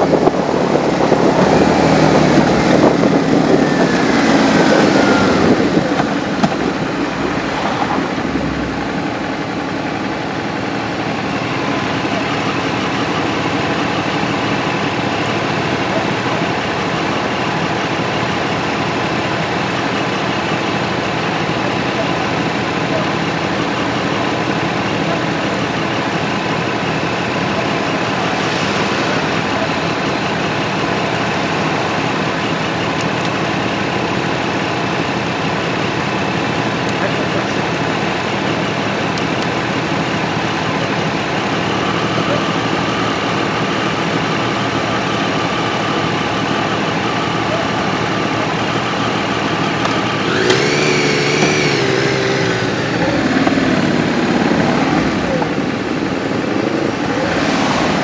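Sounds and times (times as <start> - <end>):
wind rushing over microphone: 0.0 - 9.4, 27.9 - 31.4
motorcycle engine slowing down: 0.0 - 58.0
motorcycle engines idling: 0.0 - 58.0.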